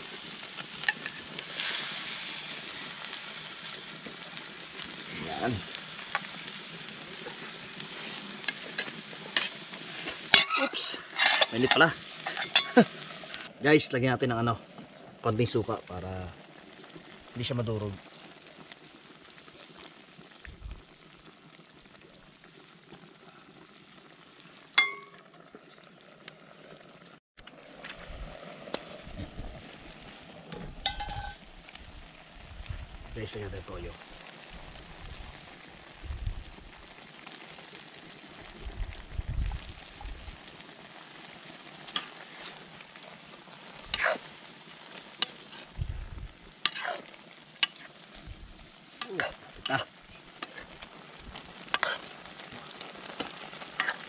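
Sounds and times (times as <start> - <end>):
meat sizzling in a pan: 0.0 - 13.5, 15.3 - 27.0, 28.0 - 54.0
metal spatula scraping a pan: 7.9 - 12.8, 43.8 - 44.3, 46.6 - 48.0, 51.7 - 52.1, 53.2 - 54.0.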